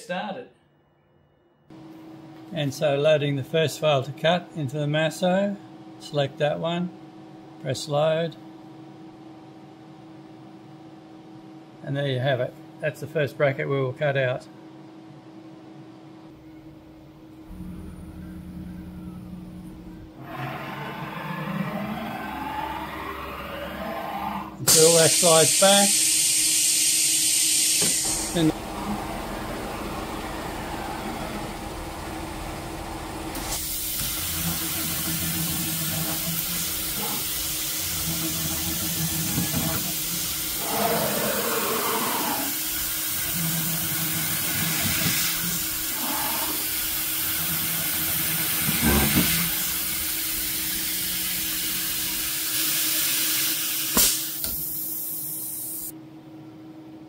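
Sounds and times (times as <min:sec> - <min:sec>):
machine stepping low hums: 0:16.3 - 0:25.3, 0:27.8 - 0:40.6
spindle high tone: 0:17.4 - 0:24.6
coolant mist hissing: 0:24.7 - 0:55.9.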